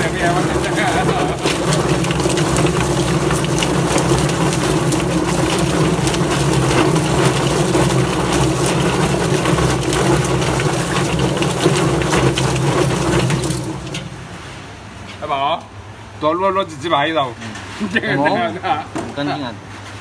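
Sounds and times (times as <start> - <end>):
clatter of knocks and slaps: 0.0 - 14.1
steady motor hum: 0.0 - 15.1.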